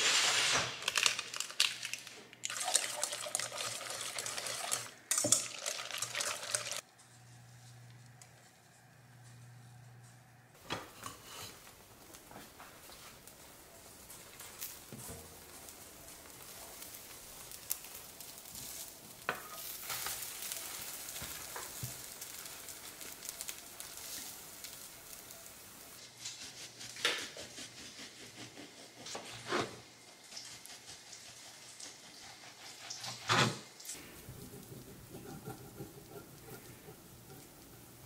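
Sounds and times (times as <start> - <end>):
food sizzling in a frying pan: 14.2 - 26.0.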